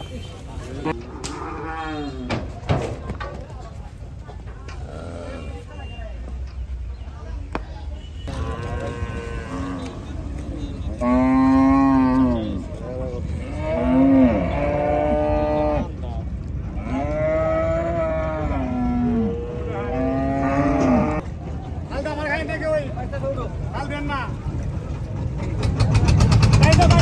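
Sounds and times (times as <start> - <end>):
cattle mooing: 8.3 - 10.0, 10.9 - 12.6, 13.4 - 15.9, 16.8 - 21.2.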